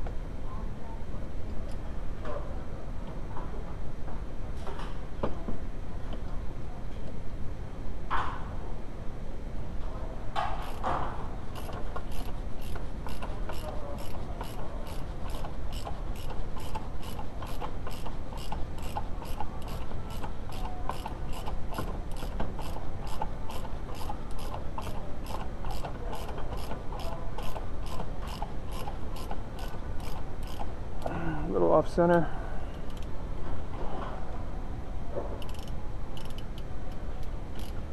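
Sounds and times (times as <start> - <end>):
ratchet wrench clicking: 10.6 - 10.9, 11.5 - 30.7, 32.8 - 33.1, 35.4 - 37.8.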